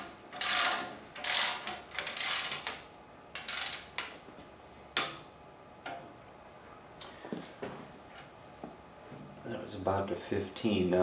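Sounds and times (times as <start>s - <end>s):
ratchet wrench clicking: 0.4s - 2.8s, 3.4s - 4.1s.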